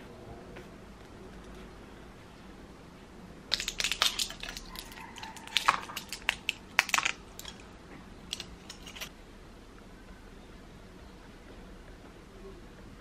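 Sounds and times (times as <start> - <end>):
blister pack crackling: 3.5 - 7.7, 8.3 - 9.1.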